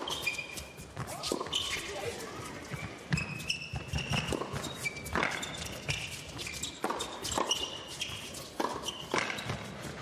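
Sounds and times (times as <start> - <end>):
tennis shoes squeaking on court: 0.0 - 10.0
tennis ball hit by rackets: 3.1 - 6.1, 6.8 - 7.8, 8.6 - 10.0.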